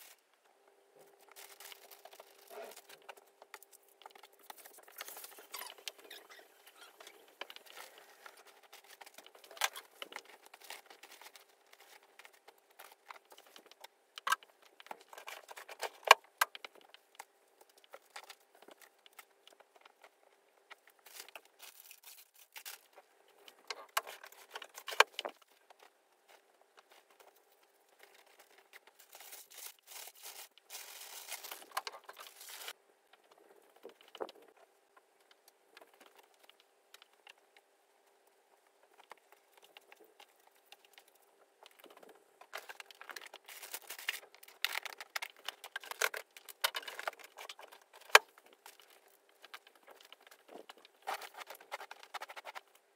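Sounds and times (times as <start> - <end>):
rustling: 16.7 - 34.6, 38.8 - 52.9.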